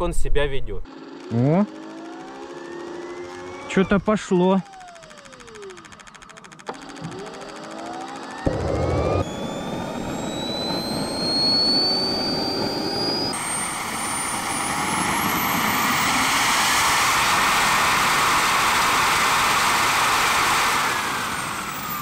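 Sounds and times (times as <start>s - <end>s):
jet turbine whine: 0.0s - 22.0s
rush of exhaust: 8.5s - 22.0s.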